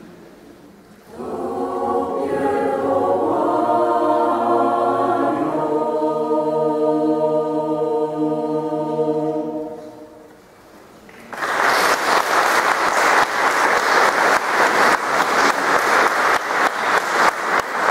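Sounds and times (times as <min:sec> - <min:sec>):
choir holding a chord: 0:01.0 - 0:10.4
audience applause: 0:11.1 - 0:17.9.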